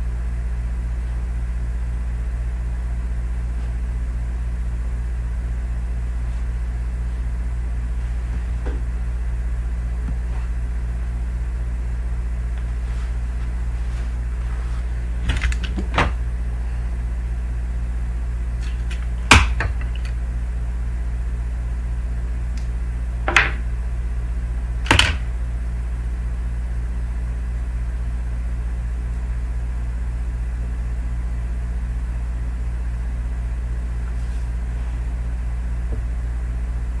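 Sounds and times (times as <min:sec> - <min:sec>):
steady low hum: 0:00.0 - 0:37.0
objects knocking on tabletop: 0:23.3 - 0:23.6.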